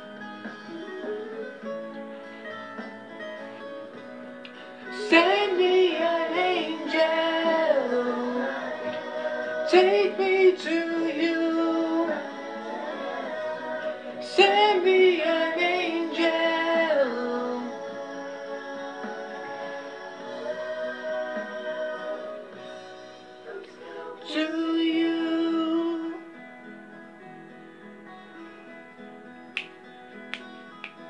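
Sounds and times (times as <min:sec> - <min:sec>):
wordless singing: 0:04.5 - 0:26.3.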